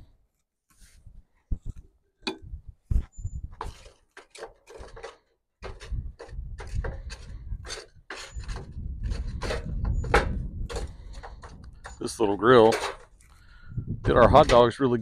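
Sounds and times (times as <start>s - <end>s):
spatula scraping charcoal in metal grill: 3.6s - 13.2s.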